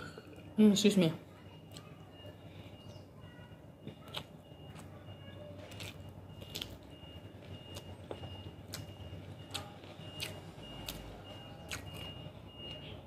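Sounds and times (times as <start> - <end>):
close-up chewing: 3.8 - 12.9.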